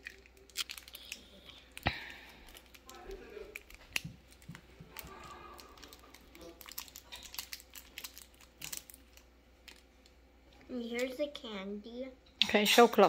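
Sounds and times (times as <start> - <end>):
plastic wrapper crinkling: 0.0 - 10.2.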